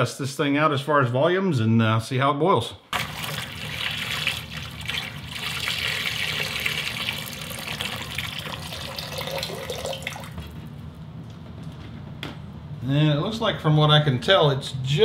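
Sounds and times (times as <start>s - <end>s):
water pouring into metal kettle: 3.0s - 10.5s.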